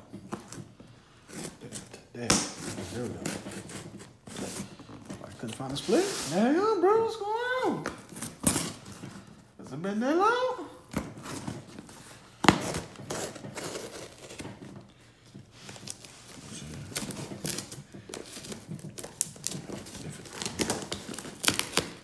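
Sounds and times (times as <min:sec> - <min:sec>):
cardboard flaps crinkling: 0:10.8 - 0:22.0
tape tearing and peeling: 0:12.4 - 0:14.6, 0:15.6 - 0:22.0.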